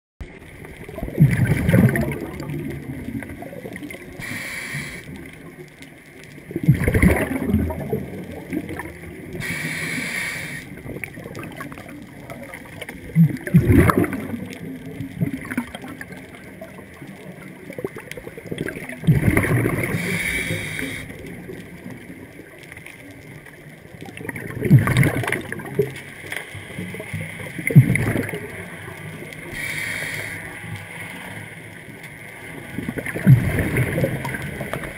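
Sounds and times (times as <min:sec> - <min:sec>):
bubbling exhalations: 0:00.9 - 0:03.5, 0:06.5 - 0:09.7, 0:12.6 - 0:16.0, 0:17.7 - 0:21.2, 0:24.2 - 0:26.0, 0:27.5 - 0:28.5, 0:32.8 - 0:34.9
regulator inhalation hiss: 0:04.2 - 0:05.2, 0:09.4 - 0:10.8, 0:19.9 - 0:21.2, 0:29.4 - 0:31.4.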